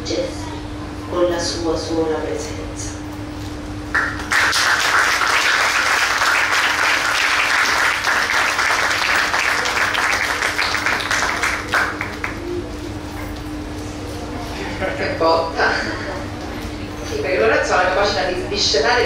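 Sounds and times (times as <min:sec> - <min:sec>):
audience applauding: 0:03.9 - 0:12.7.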